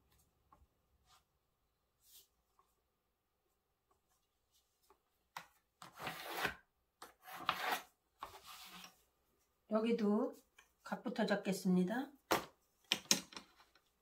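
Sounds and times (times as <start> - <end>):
pencil scraping on paper: 7.2 - 9.0.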